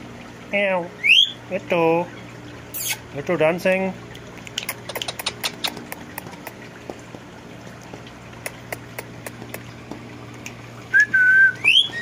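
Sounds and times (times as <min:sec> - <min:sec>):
low steady hum: 0:00.0 - 0:12.0
parakeet clicks and taps: 0:04.4 - 0:10.0.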